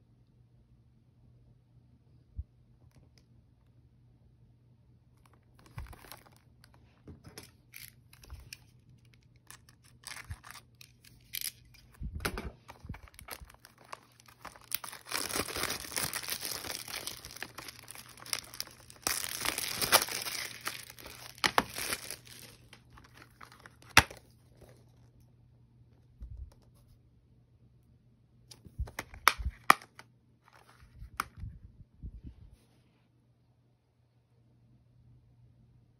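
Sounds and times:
plastic wrap tearing and crinkling: 5.3 - 6.8, 7.5 - 11.9, 12.7 - 24.2
plastic case snapping open: 9.4 - 24.2, 28.8 - 30.0.

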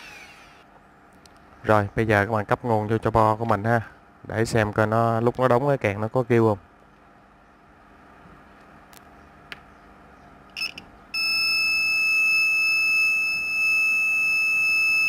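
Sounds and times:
high-pitched electronic buzzer beep: 10.6 - 15.0.

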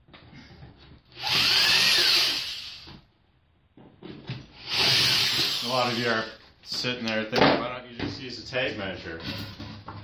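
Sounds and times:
power drill drilling into wood: 1.2 - 2.9, 4.6 - 6.3.

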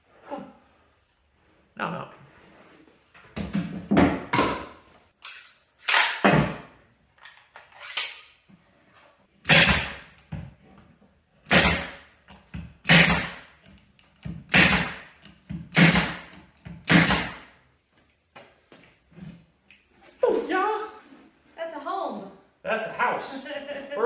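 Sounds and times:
nail gun shots into wood: 9.4 - 10.1, 11.5 - 12.1, 12.8 - 13.4, 14.5 - 17.5.

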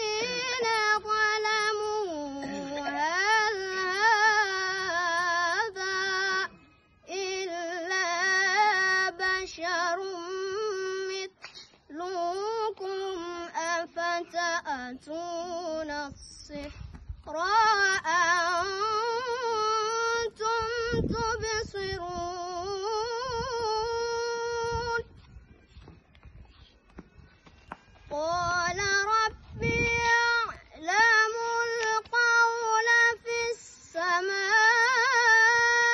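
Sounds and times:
boy reciting melodically: 0.0 - 25.1, 28.1 - 35.9.

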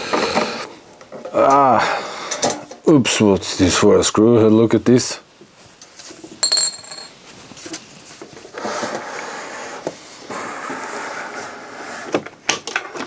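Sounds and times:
small metal clink: 6.4 - 7.2.

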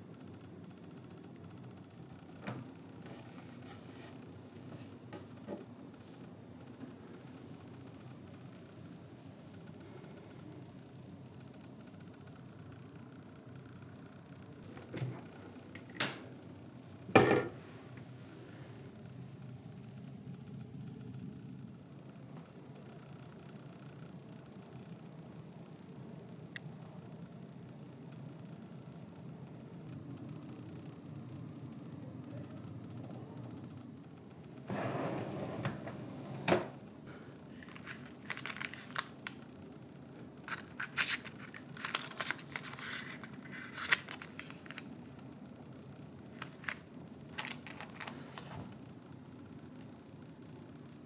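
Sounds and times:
low hum with faint hiss: 0.0 - 51.0
plastic packets crinkling: 37.5 - 39.4, 40.5 - 45.0, 46.3 - 48.5.

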